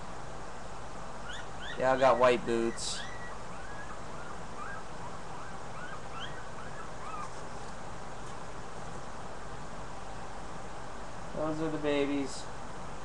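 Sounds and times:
puppies squeaking: 1.2 - 7.4.

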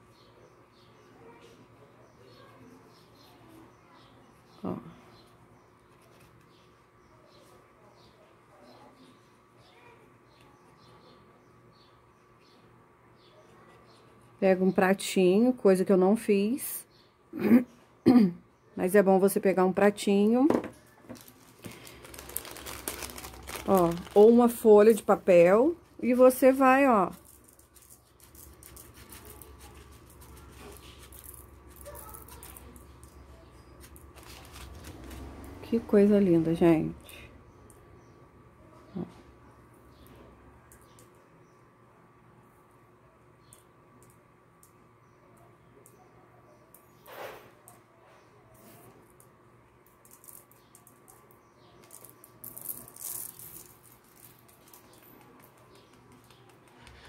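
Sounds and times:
sequins pattering onto table: 27.1 - 33.2, 49.8 - 56.8.

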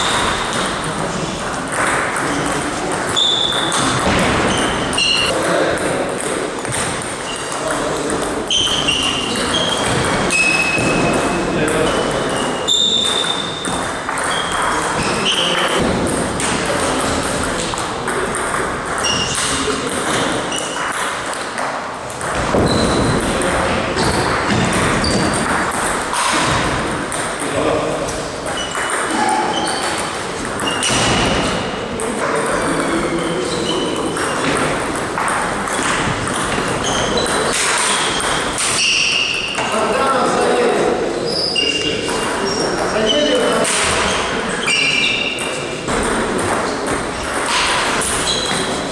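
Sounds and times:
table tennis ball pings: 0.0 - 27.6, 28.4 - 39.7, 44.7 - 48.8.

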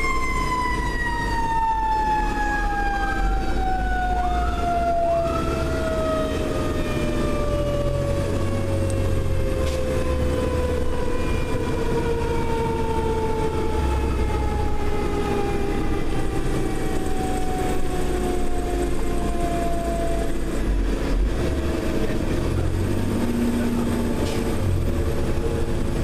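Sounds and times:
mechanical siren winding down: 0.0 - 20.6
fire engine engine rumble: 0.0 - 26.0.

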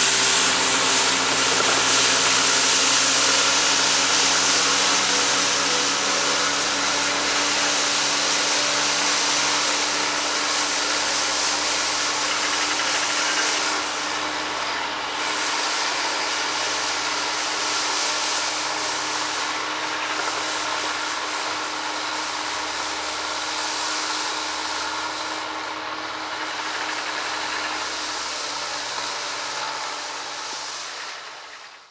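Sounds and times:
rotary brush sweeping snow: 0.0 - 25.4
tractor diesel engine humming: 0.0 - 31.6.

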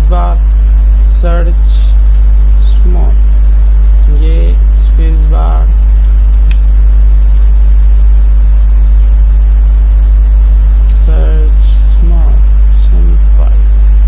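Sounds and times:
low electrical mains hum: 0.0 - 14.0.

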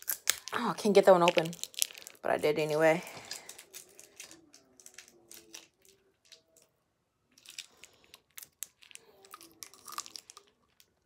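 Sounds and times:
candy wrapper crinkling: 0.0 - 6.7, 7.3 - 11.0.

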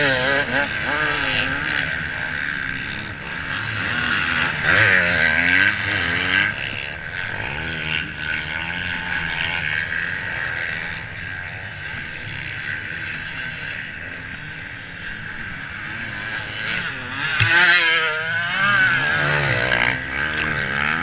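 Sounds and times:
motocross bike engine revving: 0.0 - 21.0.

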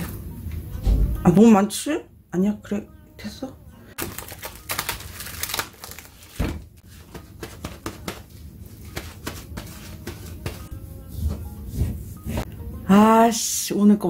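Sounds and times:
cling film crinkling: 4.0 - 8.2
paper towel rustling: 4.0 - 12.5.

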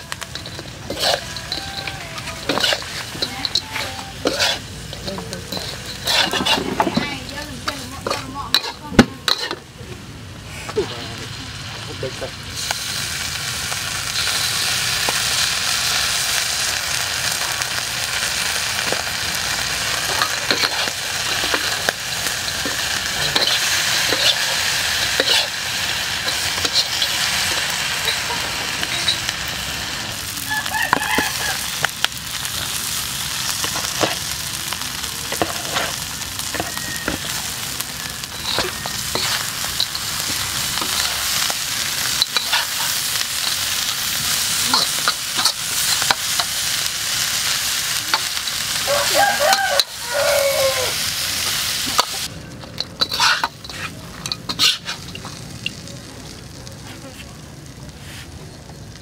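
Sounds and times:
food sizzling in a wok: 0.0 - 59.0
metal ladle scraping a pan: 0.2 - 9.6, 19.9 - 29.3, 38.2 - 46.6, 51.9 - 55.3.

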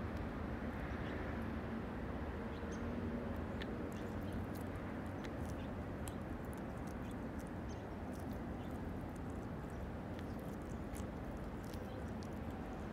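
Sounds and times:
low background rumble: 3.4 - 12.9
wet tearing of flesh: 10.1 - 12.9.

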